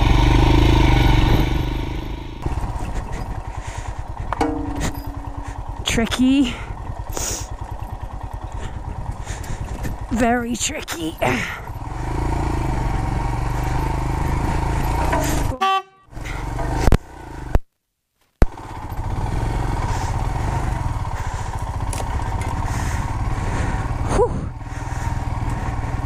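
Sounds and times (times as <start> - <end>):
motorcycle engine running: 0.0 - 17.7, 18.4 - 26.0
sharp knocks: 4.3 - 5.4.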